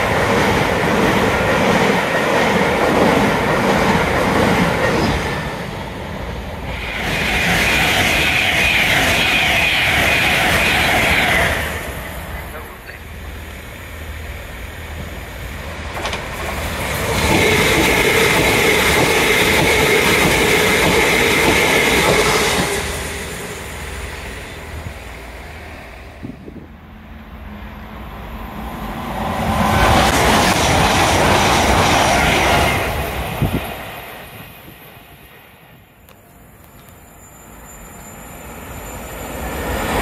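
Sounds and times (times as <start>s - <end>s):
steady train whine: 0.0s - 40.0s
train wheels rushing on rail: 0.0s - 40.0s.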